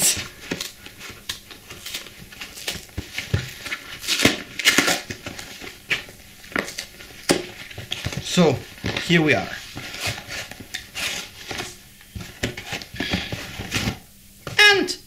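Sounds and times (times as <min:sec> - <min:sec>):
paper envelope tearing: 0:00.0 - 0:11.8.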